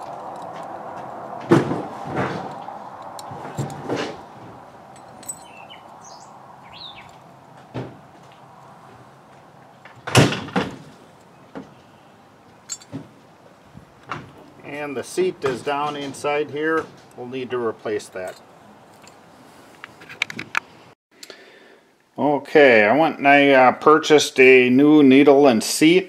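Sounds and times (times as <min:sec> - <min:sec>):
metal parts clinking: 0:02.5 - 0:04.0, 0:04.9 - 0:06.1, 0:12.6 - 0:13.0, 0:18.1 - 0:19.2
bird chirping: 0:04.9 - 0:07.6.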